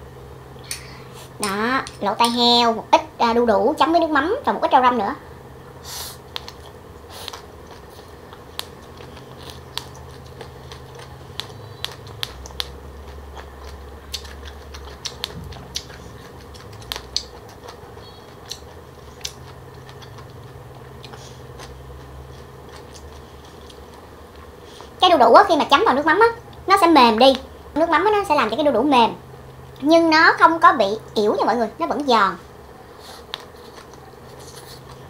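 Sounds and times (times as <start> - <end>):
faint steady hum: 0.0 - 35.0
crunchy chewing: 6.1 - 25.0, 33.0 - 35.0.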